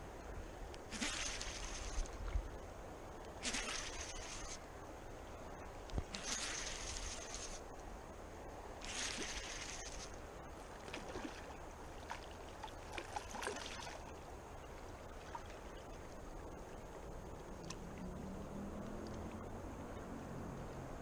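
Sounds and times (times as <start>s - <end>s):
trickling water: 0.7s - 20.9s
fish splashing at surface: 0.9s - 2.1s, 3.4s - 4.5s, 6.1s - 7.5s, 8.8s - 10.0s.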